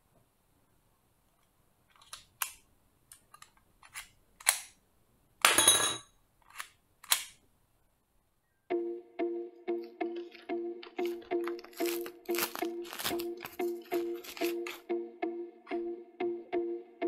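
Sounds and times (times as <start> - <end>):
toy pistol clicks and snaps: 2.0 - 4.8, 6.4 - 7.4.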